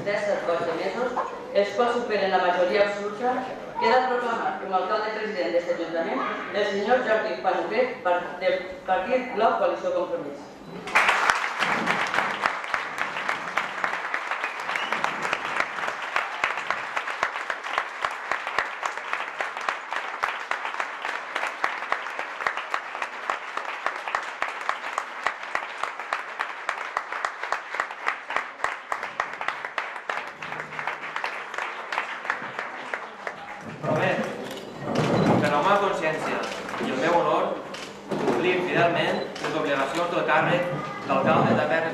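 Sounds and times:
crowd applause: 0:10.8 - 0:34.6.

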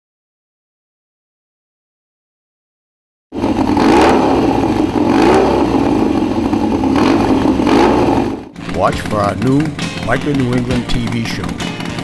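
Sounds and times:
motorcycle engine revving: 0:03.3 - 0:12.0.

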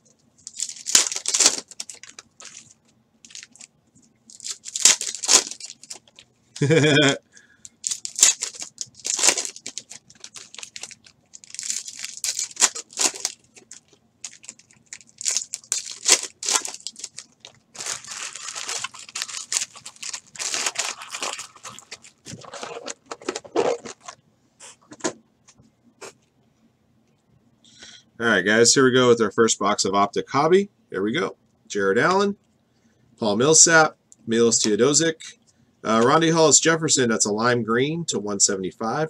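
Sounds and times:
foil wrappers tearing and crinkling: 0:00.4 - 0:03.7, 0:04.3 - 0:06.9, 0:07.8 - 0:24.2.

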